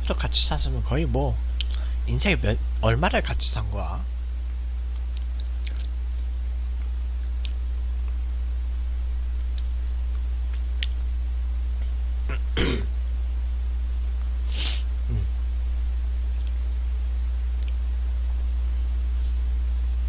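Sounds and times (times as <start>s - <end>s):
low electrical hum: 0.0s - 20.0s
breathy mouth noises: 4.9s - 6.2s, 14.5s - 15.4s.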